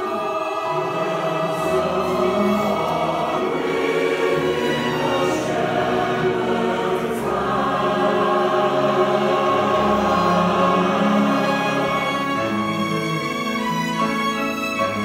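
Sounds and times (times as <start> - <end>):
mixed choir singing: 0.0 - 15.0
violin accompaniment: 0.0 - 15.0.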